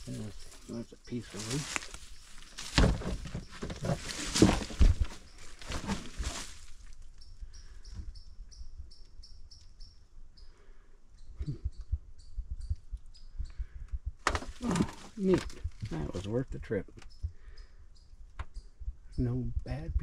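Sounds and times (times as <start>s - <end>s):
footsteps crunching through leaves: 0.0s - 7.0s
bird chirping: 0.0s - 13.9s, 14.5s - 19.9s.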